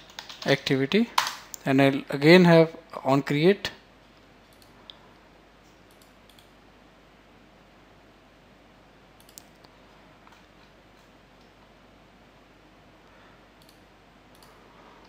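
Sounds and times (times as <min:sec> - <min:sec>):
computer mouse clicks: 0:04.5 - 0:05.0, 0:05.6 - 0:06.5, 0:09.2 - 0:11.6, 0:13.6 - 0:14.6.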